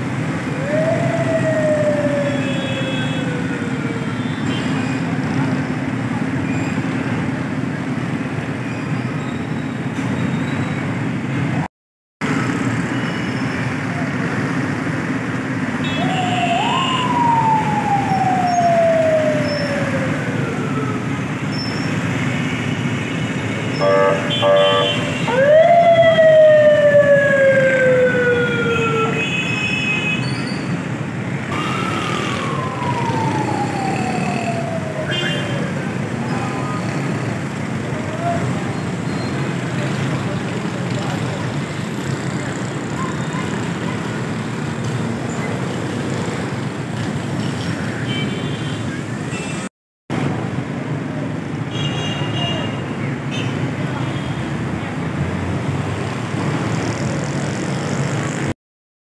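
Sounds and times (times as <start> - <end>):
street noise: 0.0 - 58.6
siren wailing: 0.5 - 4.4, 15.9 - 21.4, 24.2 - 29.2, 31.5 - 37.1.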